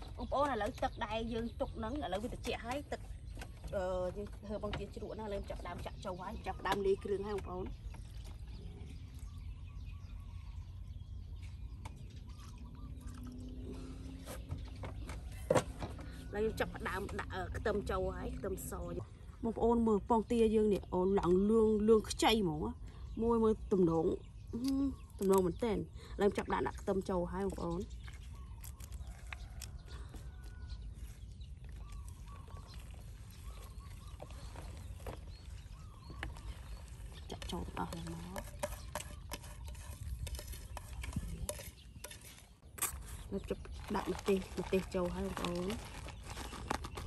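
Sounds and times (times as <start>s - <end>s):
faint bird chirps: 5.2s - 16.6s, 22.8s - 44.6s
wind on microphone: 31.8s - 47.0s.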